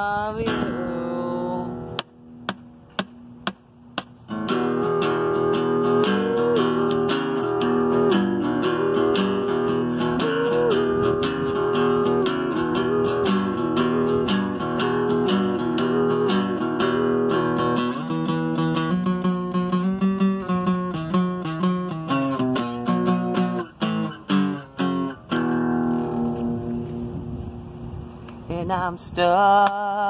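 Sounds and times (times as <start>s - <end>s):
acoustic guitar strumming chords: 0.4s - 27.8s
percussive hits on guitar: 2.0s - 4.2s.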